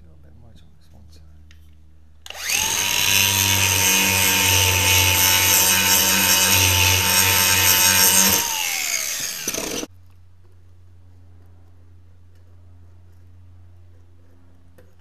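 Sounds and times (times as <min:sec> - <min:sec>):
angle grinder grinding steel: 0:02.3 - 0:09.9.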